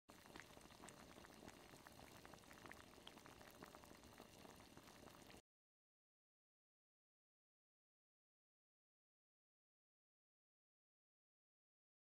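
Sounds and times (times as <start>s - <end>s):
faint fizzing crackle: 0.1s - 5.4s.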